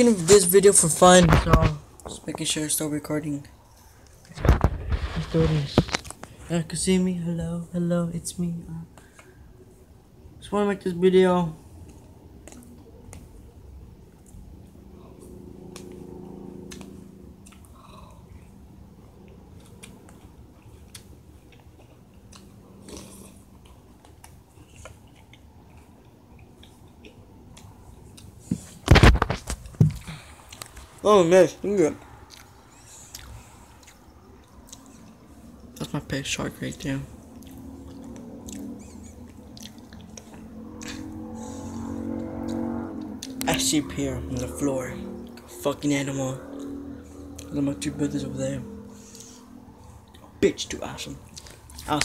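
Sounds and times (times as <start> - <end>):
person chewing crunchy cereal: 19.2 - 28.3, 32.3 - 35.9, 37.3 - 41.5.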